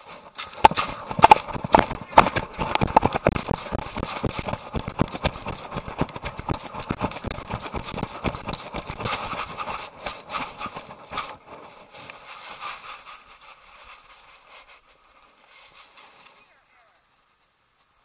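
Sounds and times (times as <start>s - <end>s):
camera thumps and rubbing: 0.0s - 14.8s
paws striking dirt: 0.2s - 11.8s.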